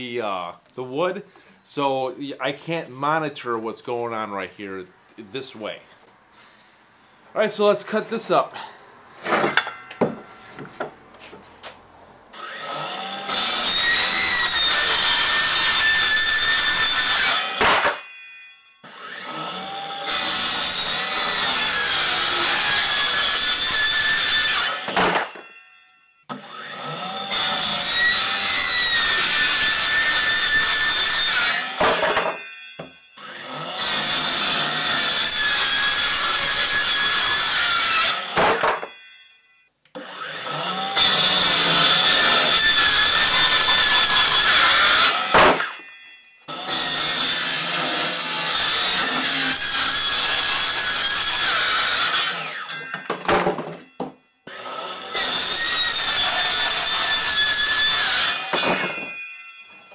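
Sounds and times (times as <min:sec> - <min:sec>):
circular saw cutting wood: 0:12.3 - 0:25.6, 0:26.3 - 0:39.1, 0:40.0 - 0:53.4, 0:54.5 - 0:59.9.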